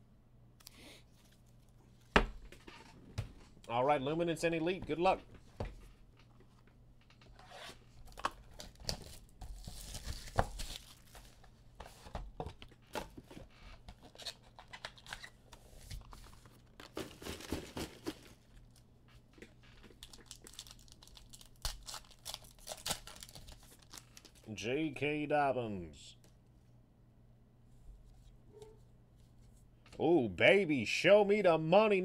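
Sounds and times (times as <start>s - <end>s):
packaging tearing: 8.1s - 11.2s, 19.9s - 24.4s
wrapper crinkling: 19.7s - 24.5s.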